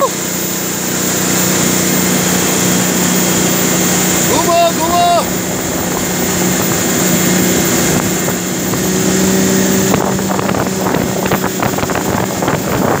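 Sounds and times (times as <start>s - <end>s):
boat engine hum: 0.0s - 13.0s
rushing water: 0.0s - 13.0s
wind on microphone: 1.1s - 13.0s.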